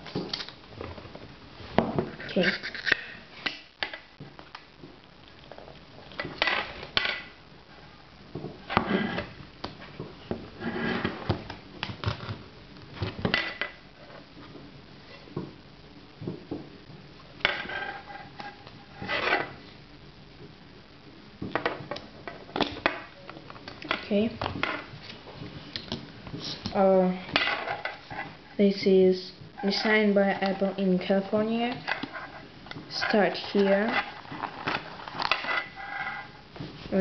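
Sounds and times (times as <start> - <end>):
plastic packaging clicks and rustles: 34.2 - 35.4.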